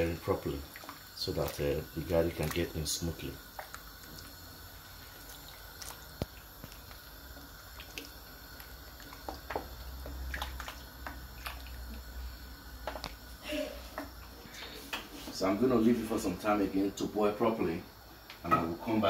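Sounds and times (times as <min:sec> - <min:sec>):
liquid sloshing: 0:00.2 - 0:12.2.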